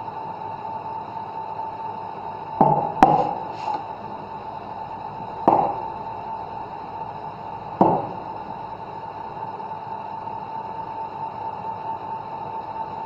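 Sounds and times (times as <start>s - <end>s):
steady hum: 0.0s - 13.0s
ceramic cup knocking on wooden counter: 2.6s - 3.3s, 5.5s - 5.8s, 7.8s - 8.1s.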